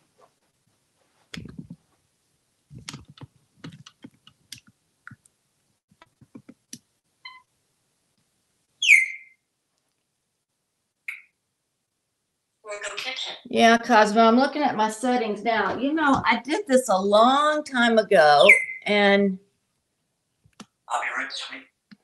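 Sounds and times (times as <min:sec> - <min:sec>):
clicks and taps with thuds: 0:02.8 - 0:05.3, 0:05.9 - 0:06.9
parrot high chirp: 0:07.2 - 0:07.5, 0:08.8 - 0:09.4, 0:11.1 - 0:11.4, 0:18.4 - 0:18.9, 0:20.9 - 0:21.7
parrot whistling: 0:08.8 - 0:09.4, 0:18.4 - 0:18.9.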